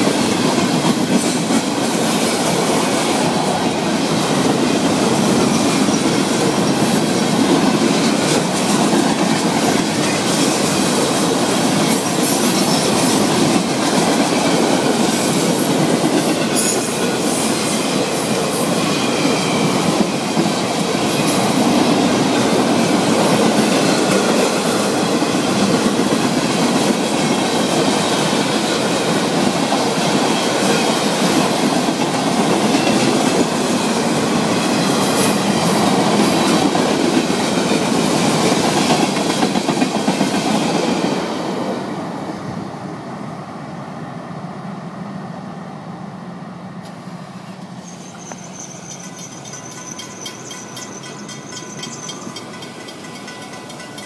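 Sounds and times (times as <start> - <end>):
clickety-clack over rail joints: 0.0 - 41.6, 47.6 - 54.0
freight train wheels on rails: 0.0 - 54.0
high wheel squeal: 47.7 - 52.5.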